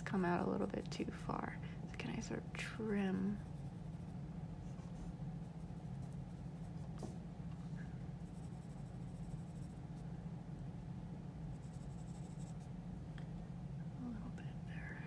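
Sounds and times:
steady low hum: 0.0s - 15.0s
pencil scratching on paper: 3.2s - 7.2s, 8.2s - 9.8s, 11.5s - 12.7s.

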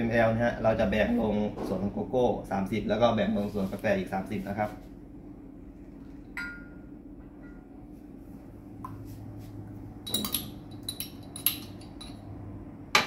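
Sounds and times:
steady low hum: 0.0s - 13.0s
metal spoon clinking on glass cups: 6.4s - 6.8s, 10.0s - 12.3s.

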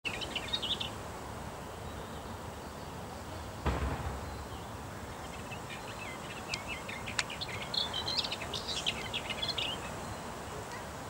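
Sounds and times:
songbird warbling: 4.1s - 10.9s.

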